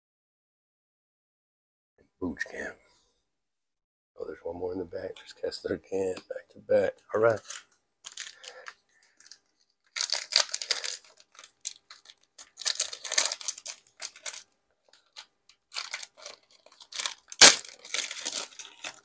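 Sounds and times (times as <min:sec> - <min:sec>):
plastic wrapper crinkling and tearing: 0:07.3 - 0:19.0.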